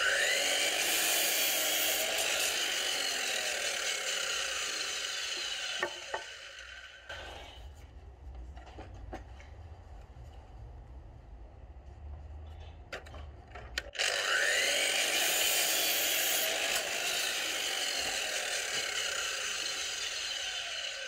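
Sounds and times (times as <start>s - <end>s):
mitre saw cutting timber: 0.0s - 7.6s, 13.9s - 21.0s.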